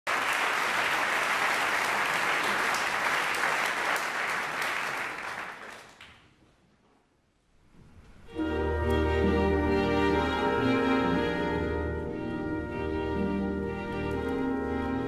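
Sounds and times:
concert audience applauding: 0.0 - 6.4.

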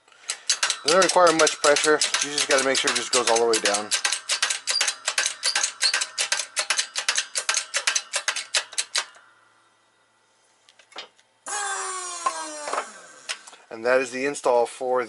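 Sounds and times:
hydraulic jack metallic clicks: 0.2 - 9.2.

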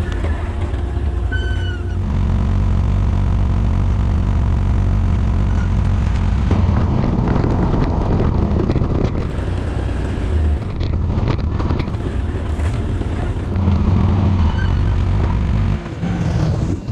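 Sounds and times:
atv engine running: 0.0 - 16.9
wind on microphone: 1.3 - 15.9
knocks from rough ground: 6.0 - 14.0.

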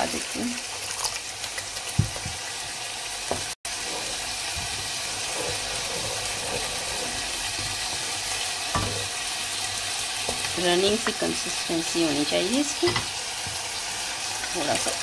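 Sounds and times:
curry sizzling and bubbling: 0.0 - 15.0
wooden spoon stirring: 3.7 - 11.5.

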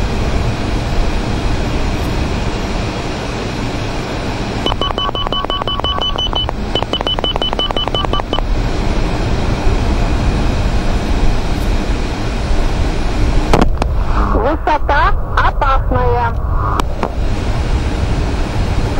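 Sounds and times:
jet engine and airflow noise: 0.0 - 18.9
rapid high beeps: 4.6 - 8.4.

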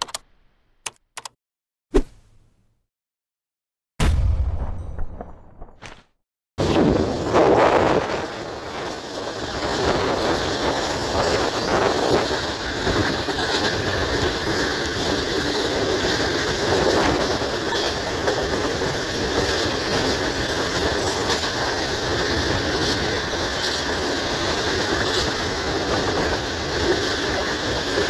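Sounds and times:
train running noise: 6.6 - 28.0.

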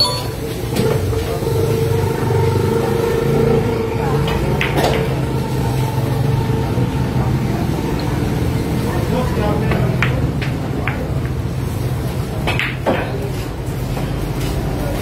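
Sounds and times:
pool balls clicking: 9.6 - 11.5, 12.4 - 13.3.

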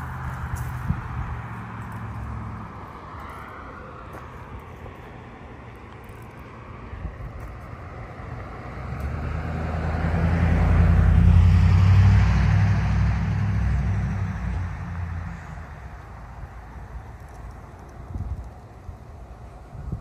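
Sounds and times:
car driving past: 8.4 - 16.0.

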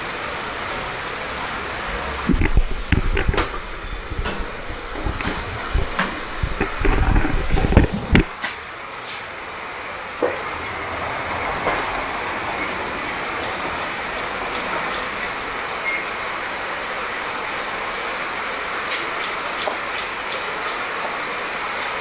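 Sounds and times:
light rain falling: 0.0 - 22.0
raindrop ticks: 2.2 - 8.4.

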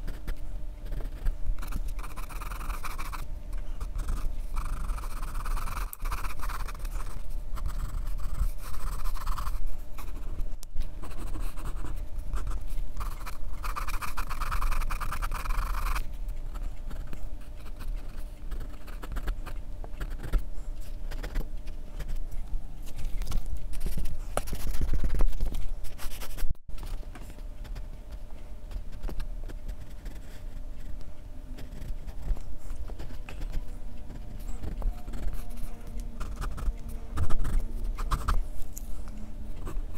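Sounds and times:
pencil scratching on paper: 0.0 - 10.4, 11.0 - 19.4, 28.8 - 31.0, 31.6 - 38.4.

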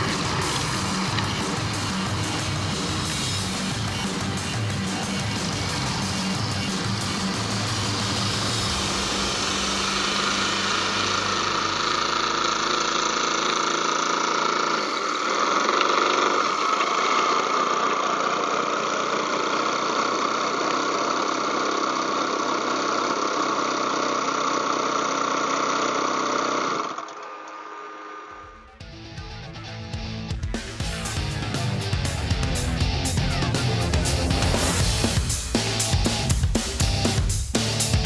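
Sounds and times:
model plane engine running: 0.0 - 27.1.

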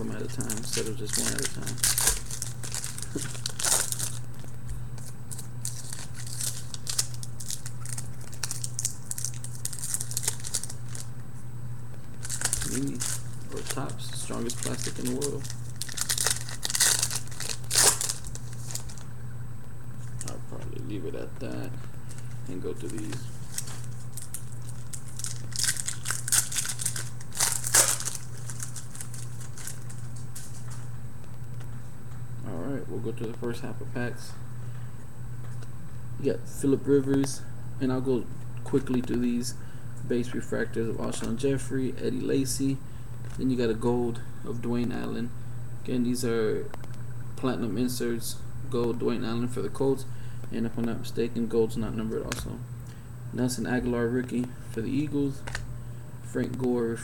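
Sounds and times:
foil wrappers crinkling and tearing: 0.0 - 11.1, 12.2 - 19.1, 20.0 - 20.4, 21.5 - 30.9
steady low hum: 0.0 - 57.0.

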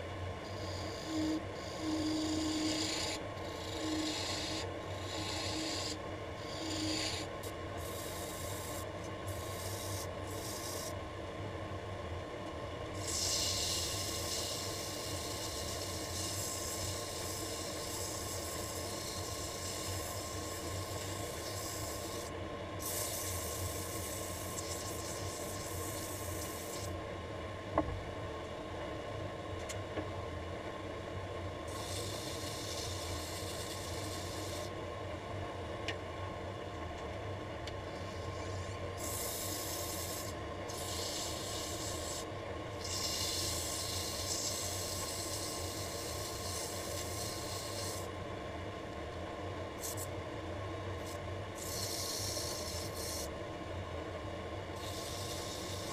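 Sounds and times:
lathe motor humming: 0.0 - 11.0
sandpaper hissing on wood: 0.6 - 11.0, 13.0 - 26.9, 31.7 - 34.7, 39.0 - 48.1, 51.0 - 53.3, 54.8 - 55.9.

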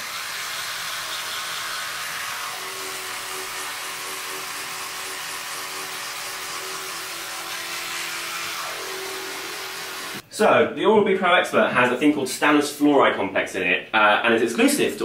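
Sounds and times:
electric toothbrush buzzing: 0.0 - 10.2.

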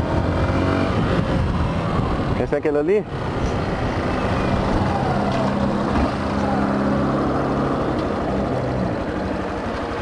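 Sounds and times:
wind and road noise: 0.0 - 10.0.

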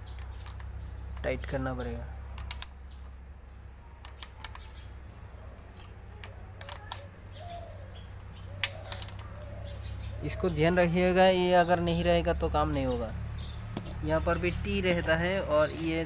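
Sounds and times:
faint bird chirps: 1.7 - 10.8
spanner clicking on metal: 2.4 - 2.8, 4.0 - 4.8, 6.2 - 7.0, 8.6 - 9.4.

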